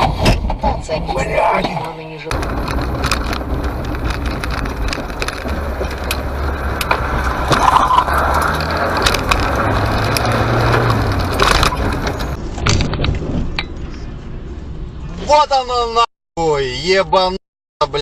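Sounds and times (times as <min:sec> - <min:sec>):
road noise: 0:00.5 - 0:18.0
sharp clicks and knocks: 0:02.3 - 0:13.8
car engine: 0:02.3 - 0:15.2.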